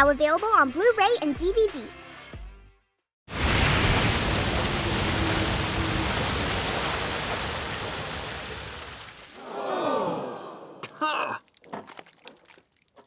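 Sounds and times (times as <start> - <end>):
water jet gushing and splashing: 3.3 - 9.4, 11.4 - 13.0.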